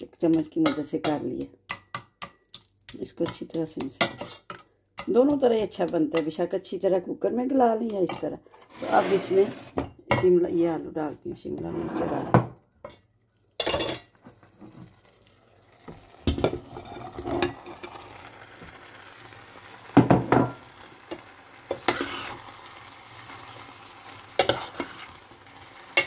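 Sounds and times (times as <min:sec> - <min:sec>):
metal spoon scraping a pot: 0:03.2 - 0:04.6, 0:08.1 - 0:09.9, 0:11.6 - 0:12.4, 0:21.7 - 0:22.4, 0:24.4 - 0:25.1
food sizzling in a pot: 0:12.9 - 0:26.0.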